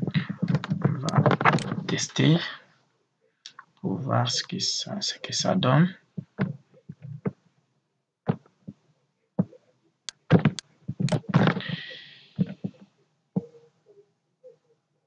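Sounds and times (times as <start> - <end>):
handling clicks and thumps: 0.0 - 2.0, 6.2 - 7.4, 8.3 - 8.8, 9.4 - 11.8, 12.4 - 12.8
sharp knocks: 10.2 - 11.7.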